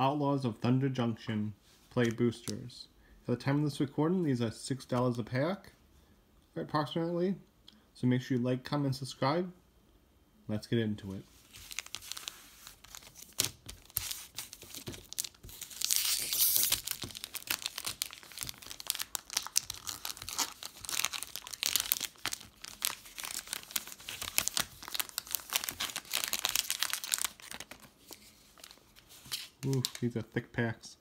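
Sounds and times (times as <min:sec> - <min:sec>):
foil wrappers crinkling and tearing: 0:11.5 - 0:30.1.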